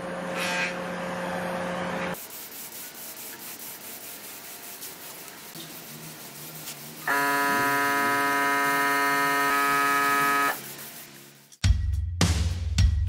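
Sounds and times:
spray gun buzzing: 0:03.8 - 0:11.4.

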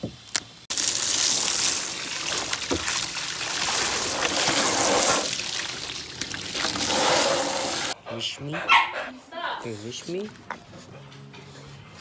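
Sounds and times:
hose spraying water on plastic: 0:00.3 - 0:08.0.

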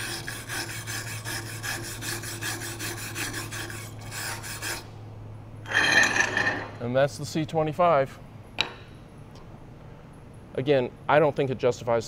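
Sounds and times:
wire brush scrubbing metal: 0:00.0 - 0:04.9
steady low hum: 0:00.0 - 0:12.0.

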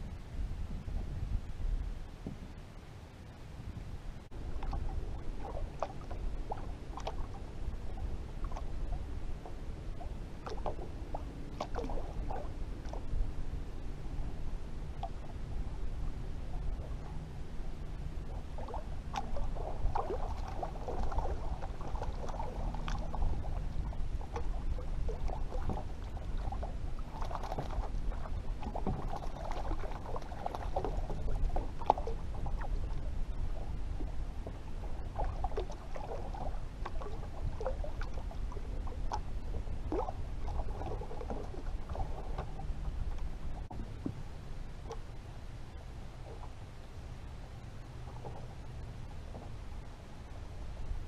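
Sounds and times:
low rumble: 0:00.0 - 0:51.0
water slapping against boat hull: 0:04.4 - 0:13.3, 0:18.3 - 0:44.2.

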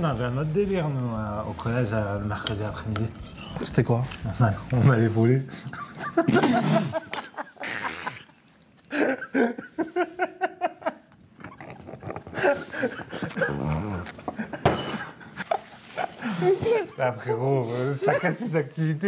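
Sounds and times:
men laughing hard: 0:05.5 - 0:11.1, 0:12.3 - 0:17.5.

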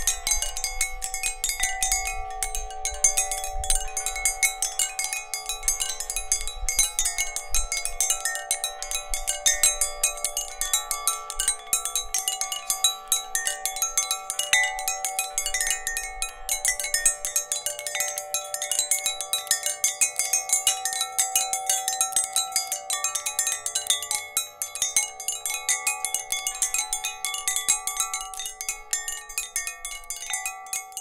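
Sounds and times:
metallic chimes ringing: 0:00.0 - 0:31.0.

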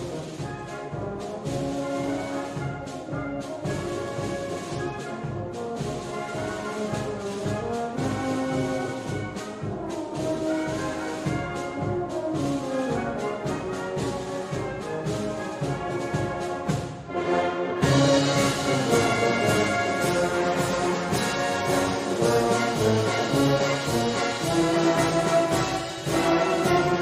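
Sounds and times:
brass band playing: 0:00.0 - 0:27.0.

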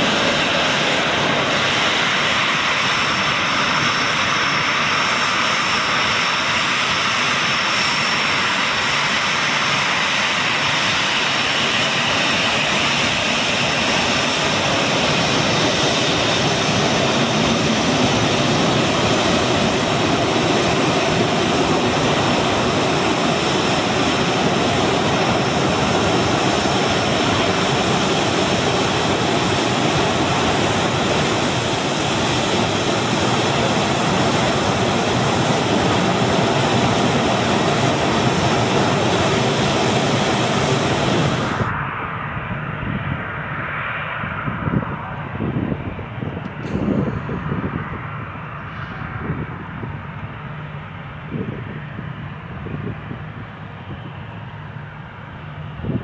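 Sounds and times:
jet engines rushing: 0:00.0 - 0:56.0
high fan whine: 0:44.4 - 0:56.0.

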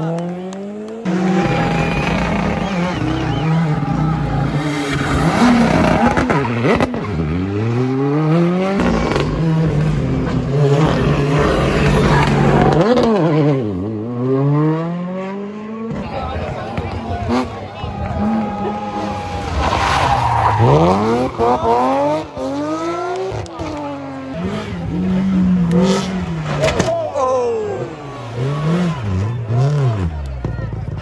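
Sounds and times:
rally car engine at high revs: 0:00.0 - 0:31.0.

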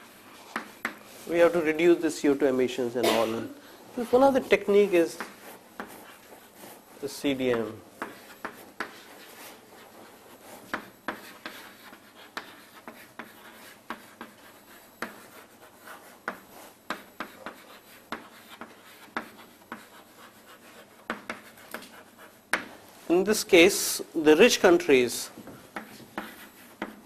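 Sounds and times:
pen scratching on paper: 0:04.1 - 0:06.9, 0:08.0 - 0:22.4, 0:25.8 - 0:27.0.

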